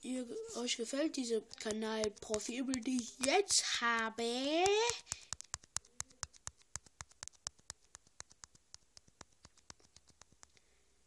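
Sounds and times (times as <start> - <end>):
rapid faint sharp clicks: 1.4 - 10.7.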